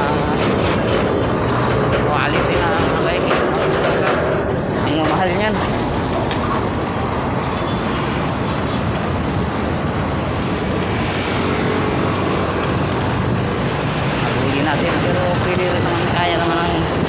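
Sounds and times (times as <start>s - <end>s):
heavy low rumble: 0.0s - 7.5s
road traffic passing: 0.0s - 17.0s.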